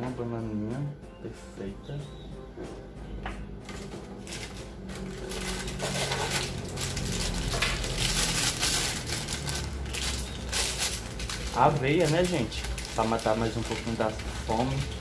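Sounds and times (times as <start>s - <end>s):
plastic bag rustling and crinkling: 3.7s - 15.0s.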